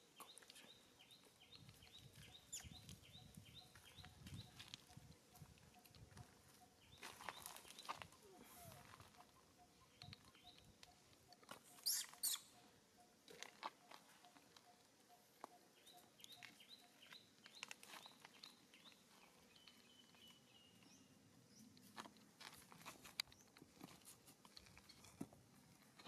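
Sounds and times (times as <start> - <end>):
faint high chirp: 0.2 - 21.7.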